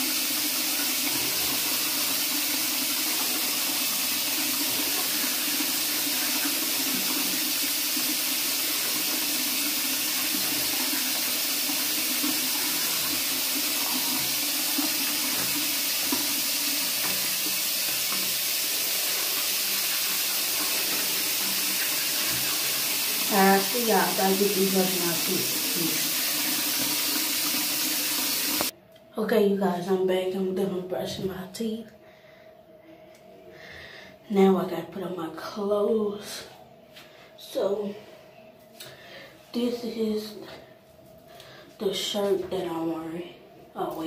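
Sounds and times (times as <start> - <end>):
tap running into sink: 12.2 - 18.6.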